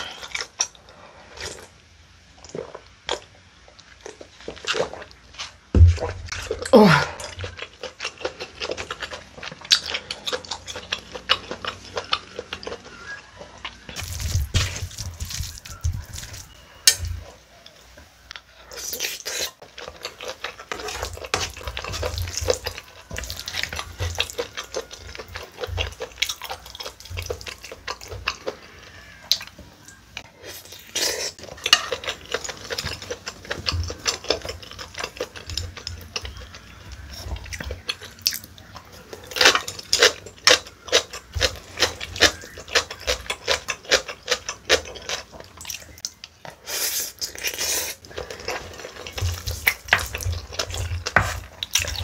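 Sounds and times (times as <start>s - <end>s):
person chewing: 0.0s - 1.8s, 2.4s - 17.4s, 18.3s - 52.0s.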